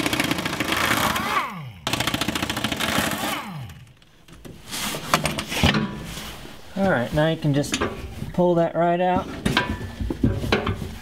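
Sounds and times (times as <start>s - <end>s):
pneumatic impact wrench hammering: 0.0s - 3.9s.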